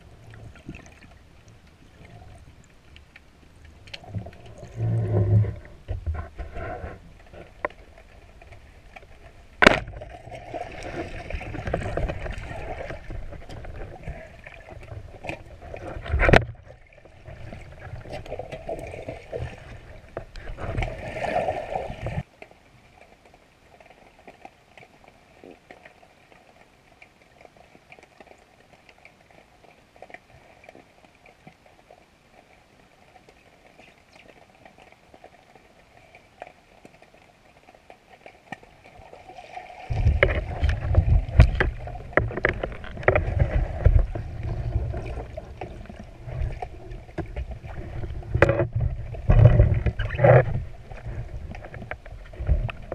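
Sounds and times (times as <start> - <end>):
faint clicks underwater: 0.0 - 21.0, 22.0 - 39.2, 39.9 - 52.9
underwater churning and sloshing: 0.0 - 52.9.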